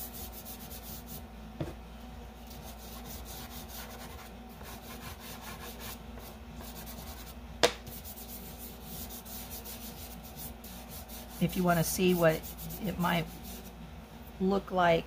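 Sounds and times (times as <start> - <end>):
chalk pastel rubbing on paper: 0.0 - 1.2, 2.5 - 13.8
sharp tap: 7.6 - 7.9.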